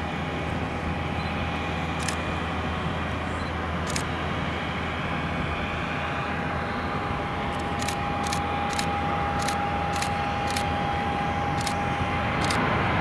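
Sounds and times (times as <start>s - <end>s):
jet engine rumble and whine: 0.0s - 13.0s.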